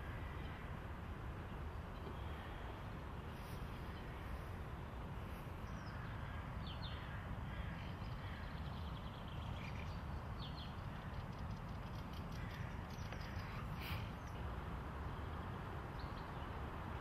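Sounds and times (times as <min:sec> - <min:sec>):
low city rumble: 0:00.0 - 0:17.0
crows cawing: 0:05.9 - 0:08.5, 0:12.3 - 0:13.9.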